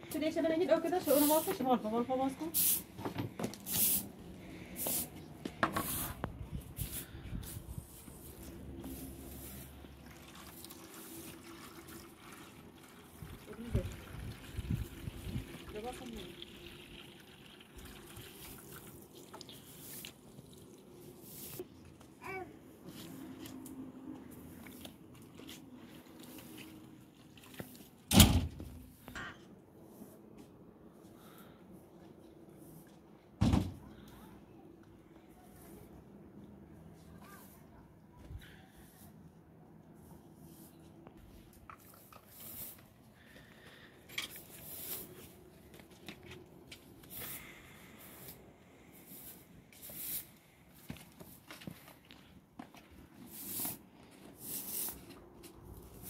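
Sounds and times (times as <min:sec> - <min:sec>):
broom sweeping concrete: 0:00.9 - 0:10.0, 0:19.5 - 0:20.3, 0:21.0 - 0:23.5, 0:24.3 - 0:26.9, 0:29.8 - 0:31.2, 0:36.8 - 0:37.9, 0:38.6 - 0:43.0, 0:44.3 - 0:45.9, 0:46.7 - 0:52.1, 0:52.8 - 0:56.0.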